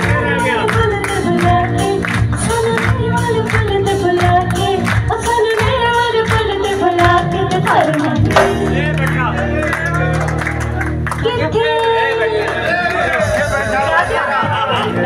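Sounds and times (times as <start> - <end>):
women singing into microphones: 0.0 - 8.7
keyboard: 0.0 - 15.0.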